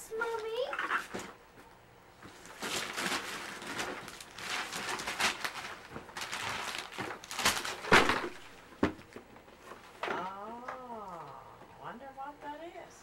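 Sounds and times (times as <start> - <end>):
wrapping paper ripping: 2.3 - 8.4.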